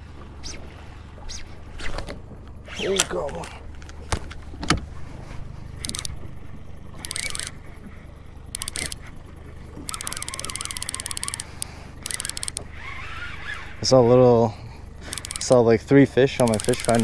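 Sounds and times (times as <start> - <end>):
boat engine hum: 0.0 - 17.0
fishing reel clicking: 5.8 - 6.2, 6.9 - 7.7, 8.5 - 9.1, 9.8 - 14.0, 15.0 - 17.0.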